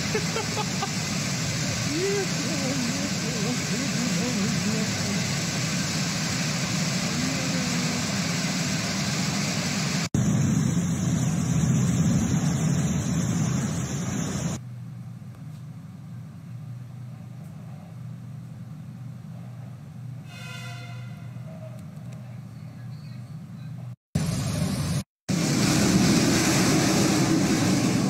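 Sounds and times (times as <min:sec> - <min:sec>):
floodwater rushing: 0:00.0 - 0:14.6, 0:25.3 - 0:28.0
steady low hum: 0:00.0 - 0:20.2.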